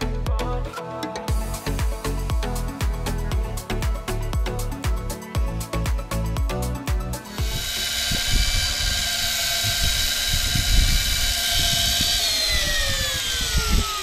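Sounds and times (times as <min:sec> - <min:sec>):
music: 0:00.0 - 0:13.9
electric fishing reel motor whining: 0:07.2 - 0:14.0.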